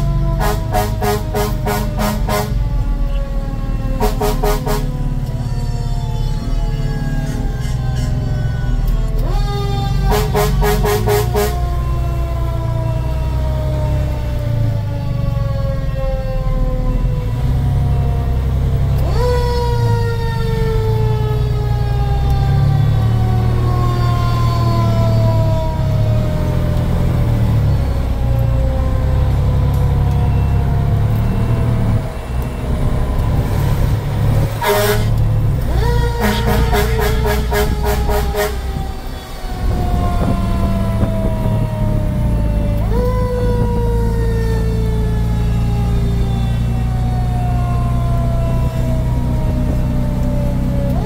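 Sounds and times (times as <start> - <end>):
siren wailing: 0.0 - 51.0
truck engine low rumble: 0.0 - 51.0
air horn blasts: 0.2 - 2.8, 3.8 - 5.2, 9.9 - 11.8, 34.5 - 39.0.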